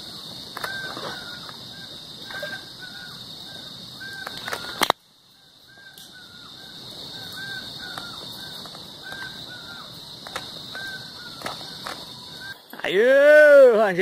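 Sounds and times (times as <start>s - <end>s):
insect chorus chirping: 0.0s - 14.0s.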